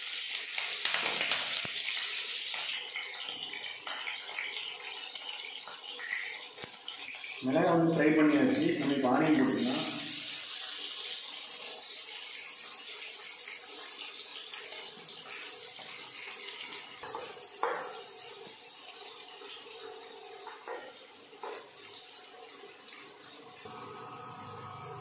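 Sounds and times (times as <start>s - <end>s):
onions sizzling in oil: 0.0s - 7.4s, 9.4s - 18.6s.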